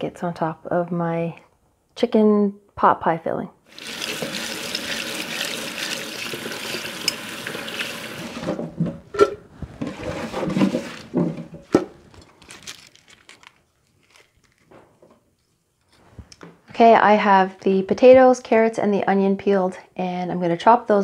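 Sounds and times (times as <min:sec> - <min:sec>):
knocks and clatter in sink: 0:08.2 - 0:12.0
faint handling sounds: 0:09.5 - 0:16.6.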